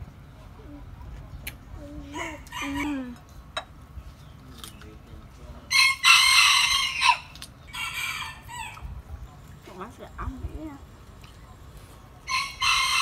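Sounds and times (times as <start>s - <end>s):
rooster crowing: 5.7s - 8.8s, 12.3s - 13.0s.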